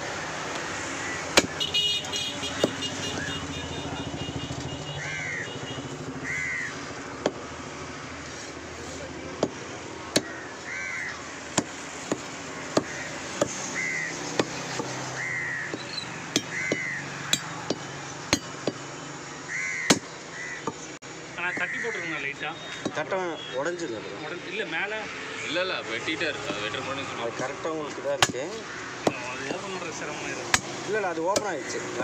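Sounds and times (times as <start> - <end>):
crows cawing: 0.9 - 1.6, 4.7 - 7.1, 10.1 - 11.7, 12.7 - 14.2, 15.0 - 17.8, 19.4 - 22.5, 28.3 - 32.0
cleaver chopping meat on wood: 1.2 - 1.7, 2.5 - 3.3, 9.3 - 10.4, 11.5 - 18.9, 19.9 - 20.8, 22.8 - 23.0, 28.2 - 29.8, 30.4 - 32.0.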